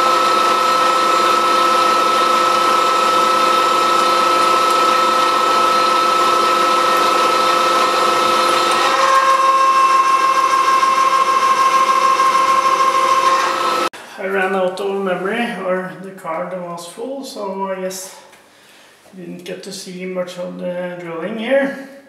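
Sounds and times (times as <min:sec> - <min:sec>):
drill cutting into metal: 0:00.0 - 0:13.9
milling machine whine: 0:00.0 - 0:13.9.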